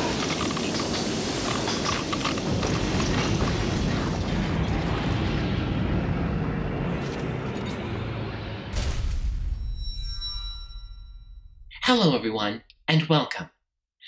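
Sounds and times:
cartoon rumbling explosion: 0:02.4 - 0:09.8.

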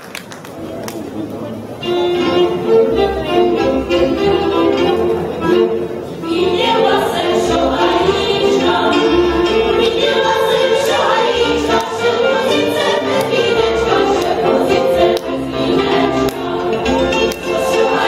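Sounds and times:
clarinet: 0:01.6 - 0:18.0
fiddles: 0:01.8 - 0:18.0
women's choir singing: 0:06.2 - 0:18.0.

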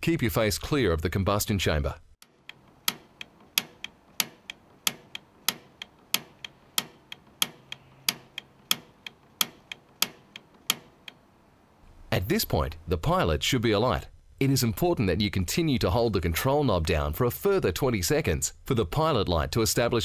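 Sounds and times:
piezo igniter snapping: 0:02.2 - 0:11.3.

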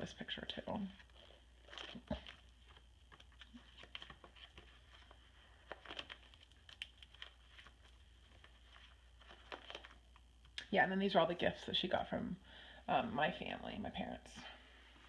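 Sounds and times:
plastic page protectors crinkling: 0:00.4 - 0:10.6
pages rustling: 0:00.5 - 0:10.6.

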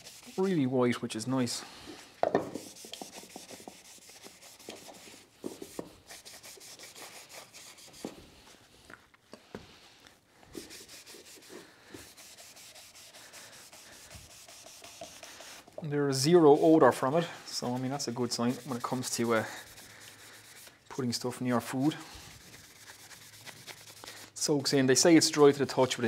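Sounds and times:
cloth rubbing on wood: 0:00.0 - 0:00.7, 0:02.5 - 0:08.2, 0:10.5 - 0:15.7, 0:17.5 - 0:20.7, 0:22.2 - 0:24.2.

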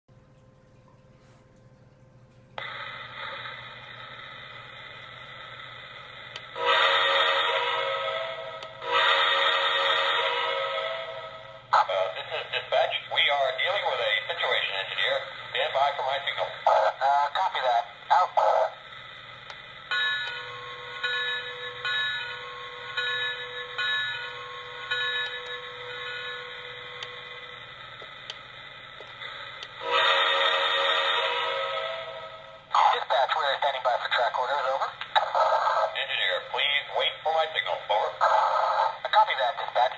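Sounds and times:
faint hum: 0:00.1 - 0:39.9
recorded steam whistle: 0:02.6 - 0:11.7, 0:29.3 - 0:32.7
toy train bell dinging: 0:06.4 - 0:11.6, 0:19.8 - 0:32.6.

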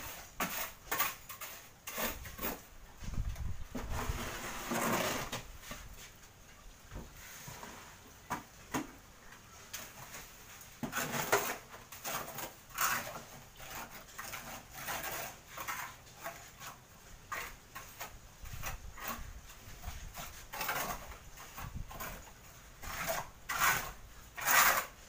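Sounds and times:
trowel scraping wet mortar: 0:00.0 - 0:02.7, 0:03.8 - 0:05.5, 0:09.8 - 0:25.0.

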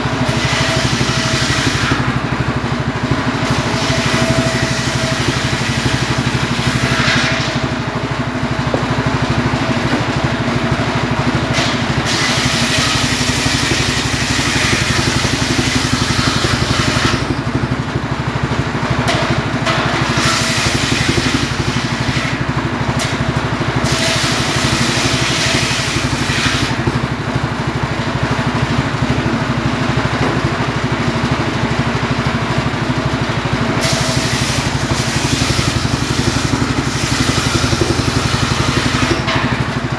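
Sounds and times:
saw blade cutting logs: 0:00.0 - 0:07.9, 0:11.4 - 0:17.6, 0:19.0 - 0:27.1, 0:33.7 - 0:39.9
circular saw engine running: 0:00.0 - 0:39.9.

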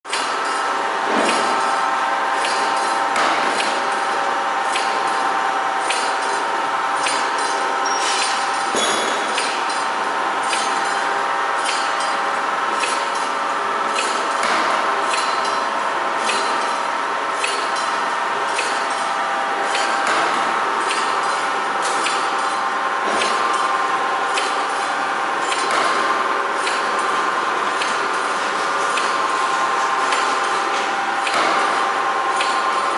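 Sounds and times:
machine knock: 0:00.1 - 0:01.8, 0:02.4 - 0:06.4, 0:12.8 - 0:32.9
spring coiling machine whine: 0:00.1 - 0:32.9.

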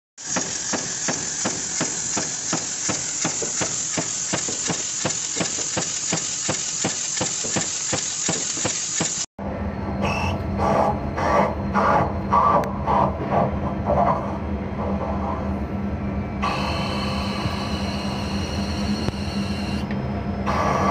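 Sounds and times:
lathe grinding: 0:00.2 - 0:09.3
power press clacking: 0:00.2 - 0:09.3
machine hum: 0:00.2 - 0:20.9.

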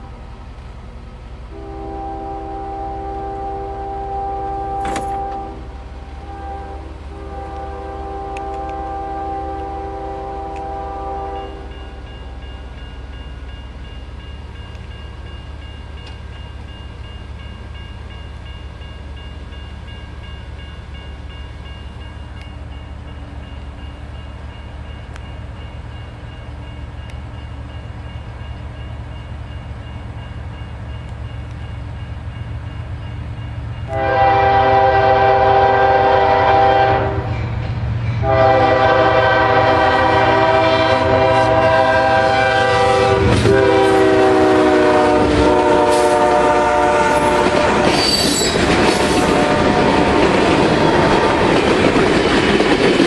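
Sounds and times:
diesel locomotive engine running: 0:00.0 - 0:53.0
locomotive air horn: 0:01.5 - 0:11.9, 0:33.9 - 0:37.4, 0:38.2 - 0:51.5.

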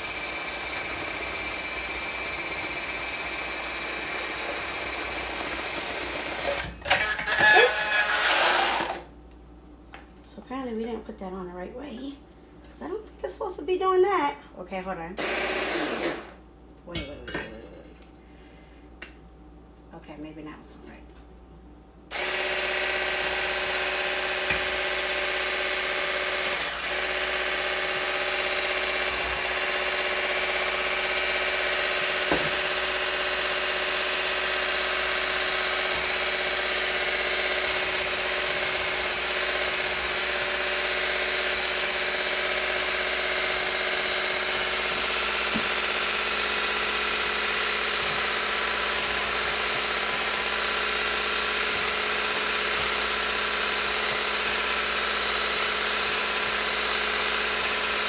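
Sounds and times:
hand blender motor whine: 0:00.0 - 0:09.1, 0:15.2 - 0:16.4, 0:22.1 - 0:58.0.

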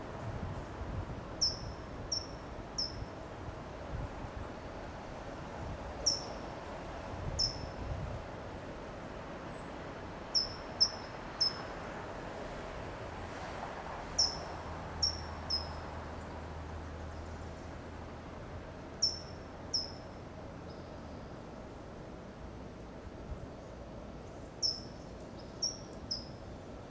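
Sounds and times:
bird sharp high calls: 0:01.4 - 0:03.1, 0:19.0 - 0:20.0.

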